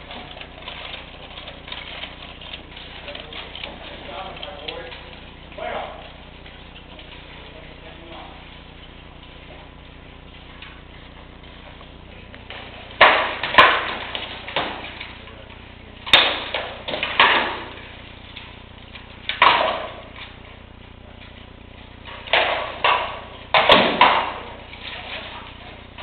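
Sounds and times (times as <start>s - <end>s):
rattan swords striking shields: 12.5s - 15.0s, 16.1s - 17.9s, 19.3s - 20.2s, 22.1s - 25.4s.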